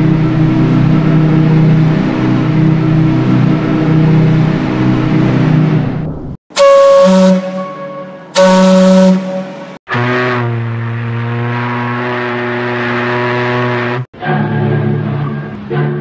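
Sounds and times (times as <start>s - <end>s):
ship's steam whistle blasts: 6.5s - 14.0s.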